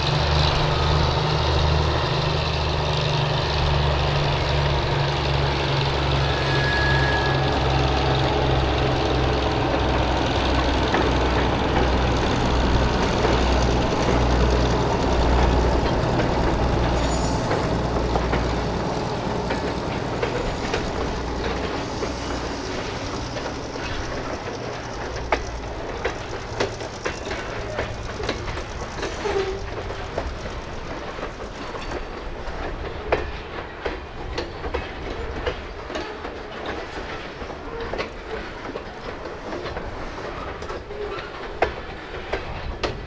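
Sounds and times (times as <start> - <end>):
diesel locomotive engine throbbing: 0.0 - 43.0
wheels clicking over rail joints: 7.7 - 43.0.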